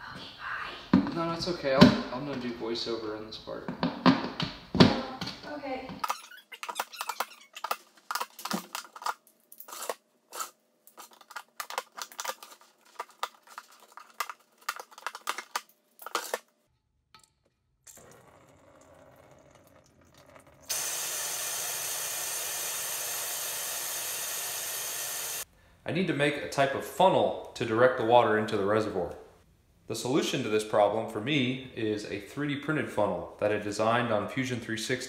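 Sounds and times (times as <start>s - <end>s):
knife scraping through plastic: 6.6s - 16.4s.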